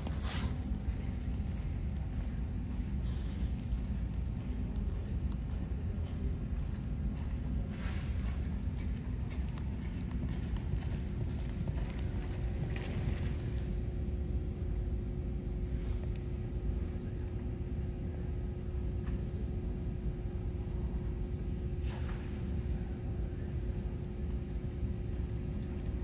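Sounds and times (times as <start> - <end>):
horse hoofbeats on soft dirt: 0.0 - 14.2, 23.4 - 26.0
low rumble and hum: 0.0 - 26.0.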